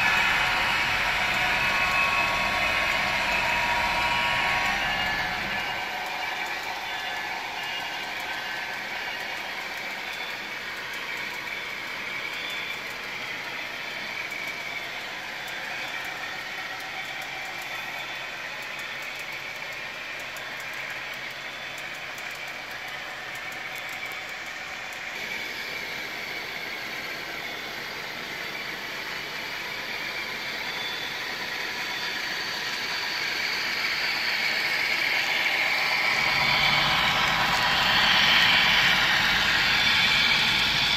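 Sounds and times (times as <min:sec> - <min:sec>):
model train wheels clattering on rails: 0:00.0 - 0:25.4.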